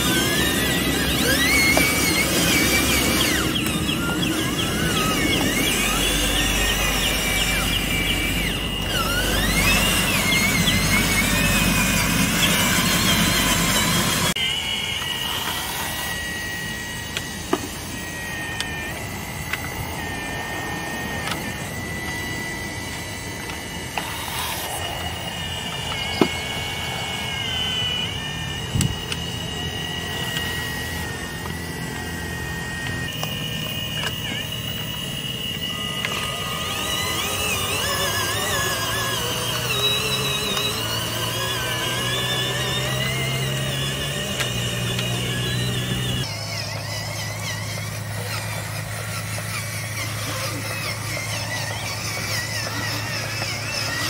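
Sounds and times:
sharp clicks: 0.0 - 14.4
hydraulic pump motors whining: 0.0 - 54.0.

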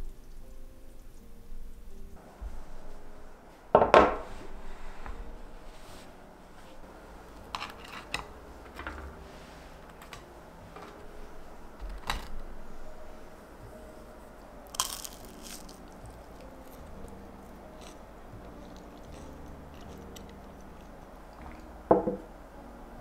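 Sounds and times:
plate knocking on wooden table: 3.8 - 4.2, 21.9 - 22.3
tableware clicking: 7.6 - 9.2, 21.9 - 22.3.

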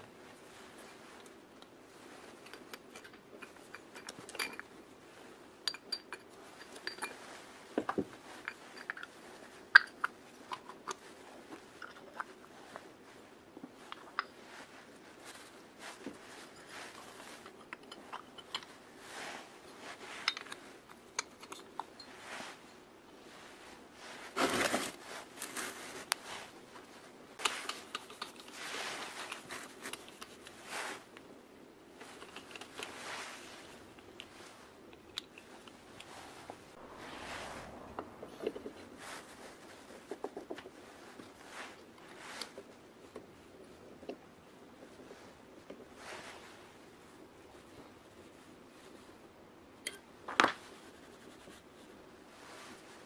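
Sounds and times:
low scrape: 36.1 - 40.1.

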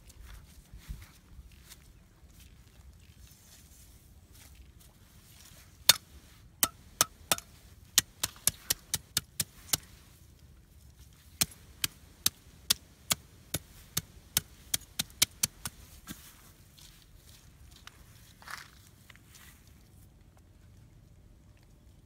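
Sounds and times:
sharp dry knocks: 6.6 - 9.9, 11.4 - 15.8.

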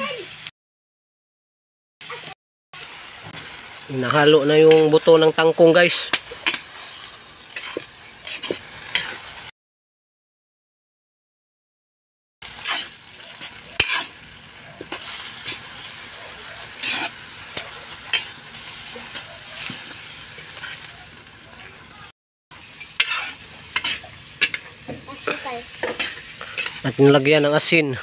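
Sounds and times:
vegetables sizzling in a wok: 0.0 - 0.5, 2.0 - 9.5, 12.4 - 28.0
spatula scraping a wok: 2.0 - 9.5, 12.4 - 21.4, 22.6 - 28.0.

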